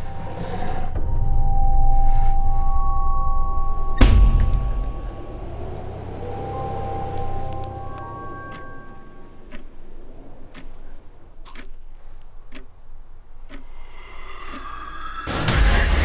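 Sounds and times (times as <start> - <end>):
rising tones: 0.0 - 11.4, 13.6 - 16.0
mantel clock ticking: 4.8 - 14.8.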